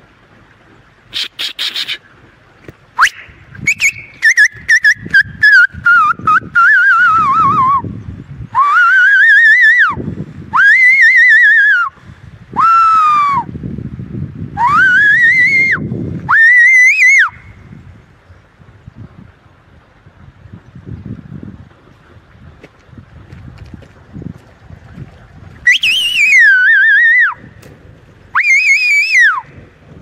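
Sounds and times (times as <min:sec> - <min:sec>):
person whistling loudly: 0:03.0 - 0:07.8, 0:08.6 - 0:10.0, 0:12.6 - 0:13.5, 0:14.6 - 0:17.4, 0:25.7 - 0:27.4, 0:28.4 - 0:29.5.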